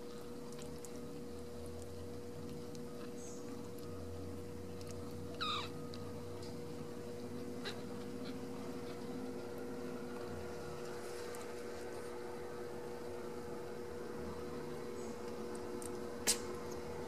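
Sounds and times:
steady background hum: 0.0s - 17.0s
kitten mewing: 5.4s - 5.8s.

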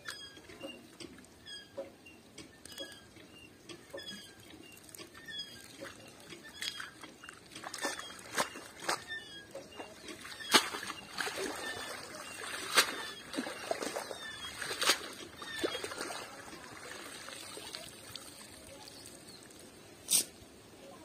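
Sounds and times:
water splashing: 3.8s - 19.8s
water running off net: 7.6s - 20.3s
net swishing in water: 9.8s - 18.7s.

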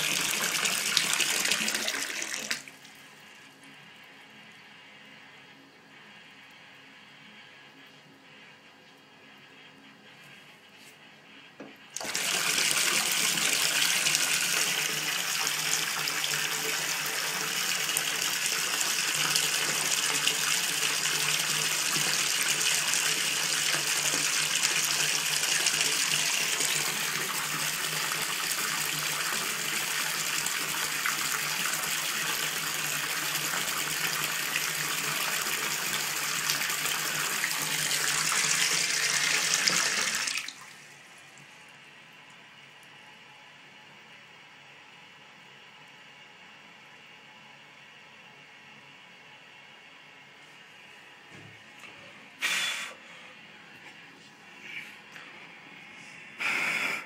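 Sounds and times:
tap water running into bathtub: 0.0s - 3.0s, 12.0s - 41.5s.

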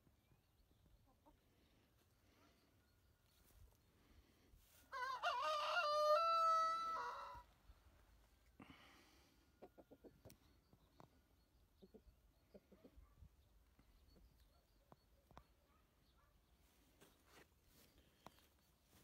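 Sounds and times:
rooster crowing: 4.9s - 7.4s.

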